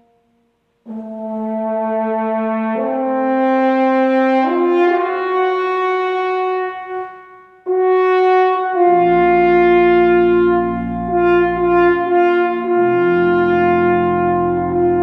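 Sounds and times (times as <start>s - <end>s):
french horn slow melody: 0.0s - 15.0s
organ low held notes: 8.7s - 15.0s.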